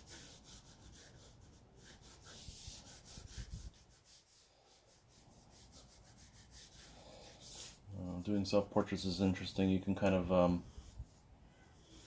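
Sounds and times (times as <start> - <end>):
pencil scribbling on paper: 0.0 - 7.8, 10.6 - 12.0.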